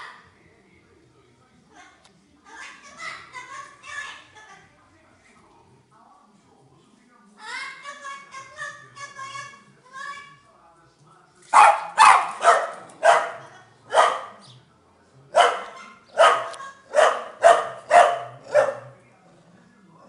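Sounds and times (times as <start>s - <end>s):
small dog barking: 11.5s - 14.4s, 15.4s - 19.0s.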